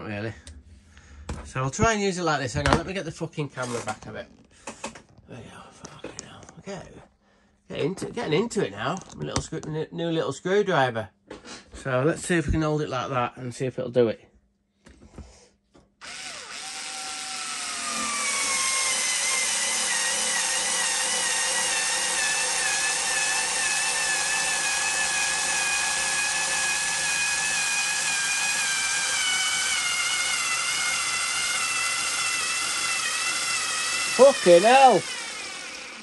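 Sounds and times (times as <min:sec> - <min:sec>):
cordless screwdriver motor whining: 0:16.0 - 0:36.0.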